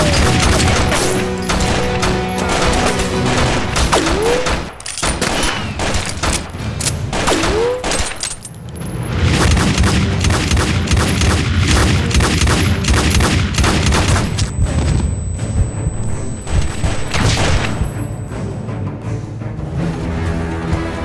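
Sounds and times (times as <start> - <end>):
pistol gunshots: 0.0 - 8.4, 9.3 - 14.5, 16.7 - 17.8.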